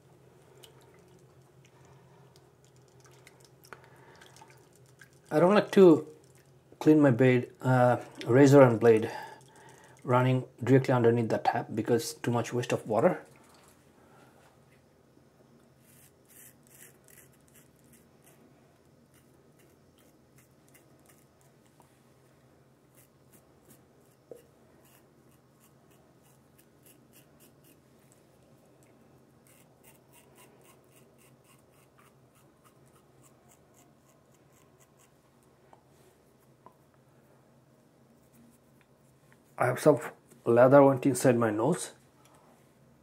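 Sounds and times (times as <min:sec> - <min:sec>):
razor scraping stubble: 0:15.8 - 0:18.4, 0:19.0 - 0:21.8, 0:22.9 - 0:27.8, 0:29.4 - 0:35.2.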